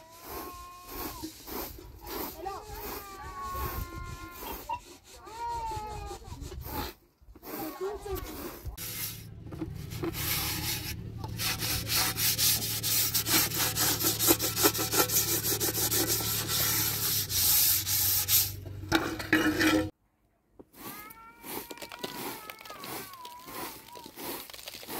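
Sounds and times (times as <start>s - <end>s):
scouring pad scrubbing metal pot: 7.6s - 19.9s.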